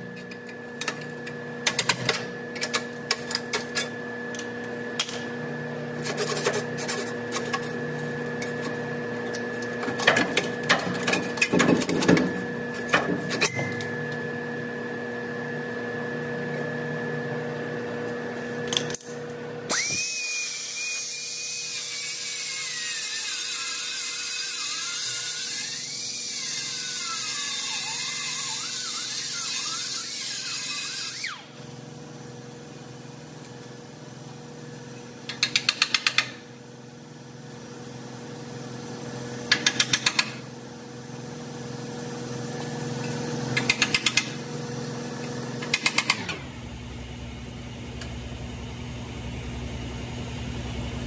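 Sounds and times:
power tool whine: 19.7s - 32.0s.

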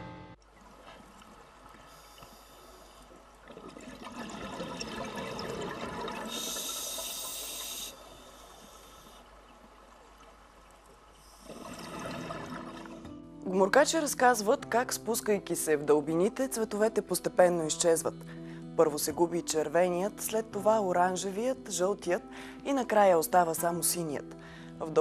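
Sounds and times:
underwater water wash: 0.4s - 13.2s.

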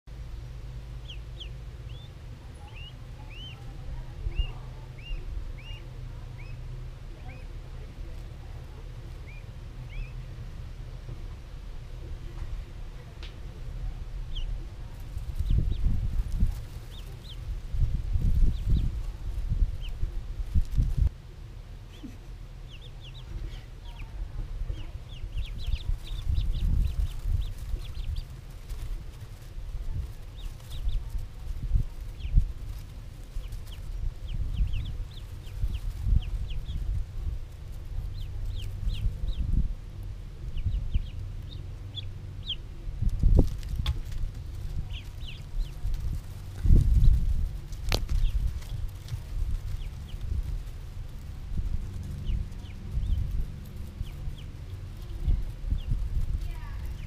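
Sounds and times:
low rumble: 0.1s - 57.0s
steady low hum: 0.1s - 57.0s
ducklings peeping: 0.4s - 21.1s, 21.8s - 57.0s.

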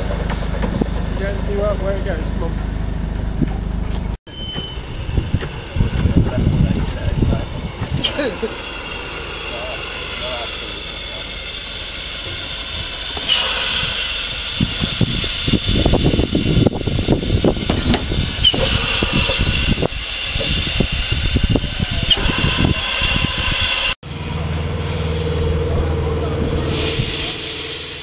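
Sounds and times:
low rumbling and knocks: 0.0s - 9.5s, 12.1s - 23.6s
steam hissing: 4.3s - 28.0s.

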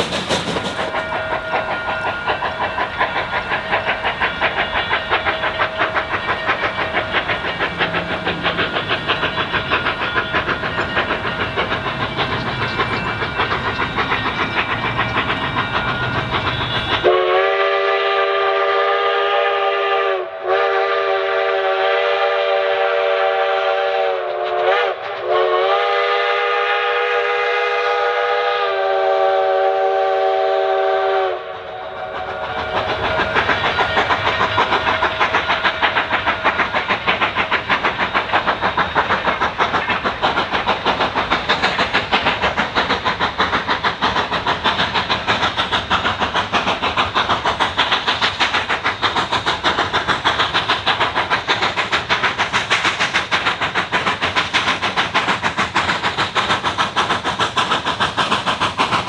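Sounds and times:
steam locomotive chime whistle: 0.0s - 7.2s, 7.8s - 37.0s
steam locomotive exhaust chuffing: 0.0s - 59.0s.

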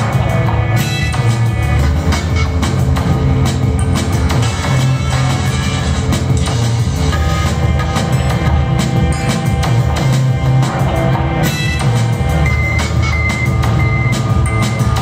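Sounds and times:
glitch hop electronic music: 0.0s - 15.0s
heavy bass line: 0.0s - 15.0s
steady drum beat: 0.0s - 15.0s.

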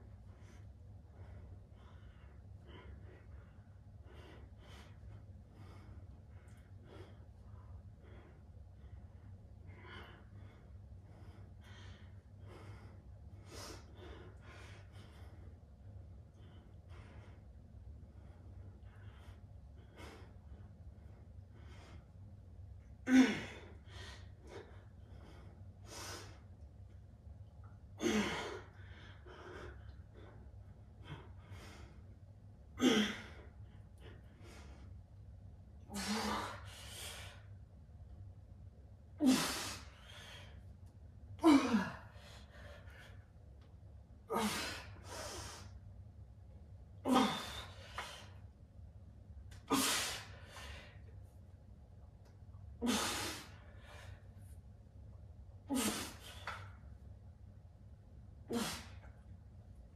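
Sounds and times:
steady low hum: 0.0s - 59.9s
man grunting and exhaling: 41.4s - 42.1s, 47.1s - 48.1s.

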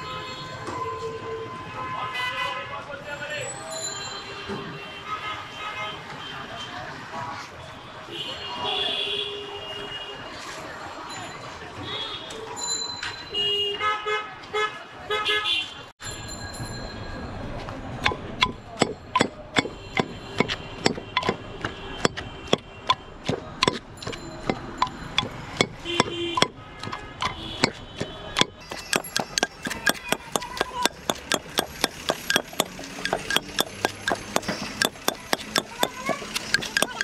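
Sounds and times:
knife chopping fruit on board: 28.4s - 37.0s.

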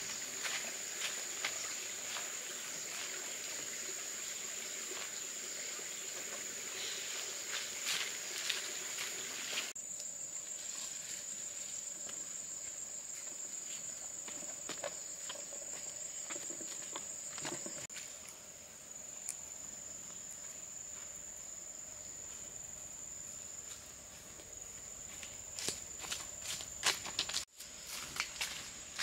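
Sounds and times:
insects chirring: 0.0s - 29.0s.

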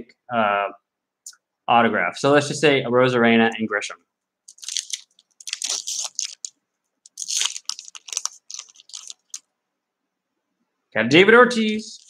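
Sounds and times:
foil wrapper crinkling and tearing: 4.5s - 6.5s, 7.1s - 9.4s.

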